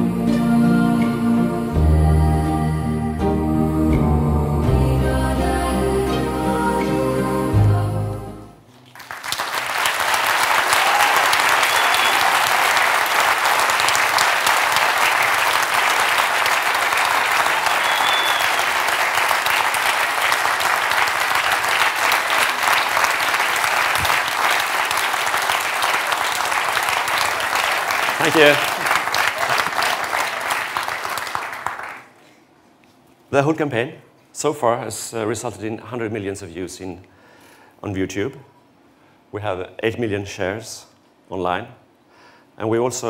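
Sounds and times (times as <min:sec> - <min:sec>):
film soundtrack music: 0:00.0 - 0:08.7
audience applause: 0:08.8 - 0:32.2.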